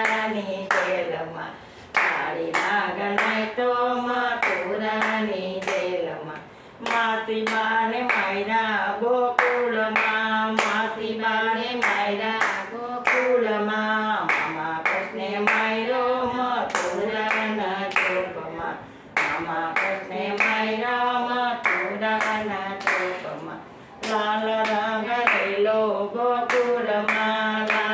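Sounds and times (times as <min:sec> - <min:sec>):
hand claps: 0:00.0 - 0:01.0, 0:01.9 - 0:03.4, 0:04.4 - 0:08.3, 0:09.4 - 0:10.8, 0:11.8 - 0:13.4, 0:14.2 - 0:15.7, 0:16.7 - 0:18.3, 0:19.2 - 0:20.7, 0:21.6 - 0:23.4, 0:24.0 - 0:25.6, 0:26.5 - 0:27.9
women singing devotional song: 0:00.0 - 0:27.9.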